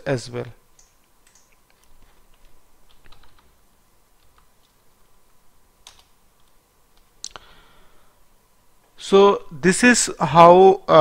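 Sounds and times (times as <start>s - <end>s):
computer keyboard typing: 0.8s - 3.5s, 4.2s - 4.8s, 5.8s - 7.1s.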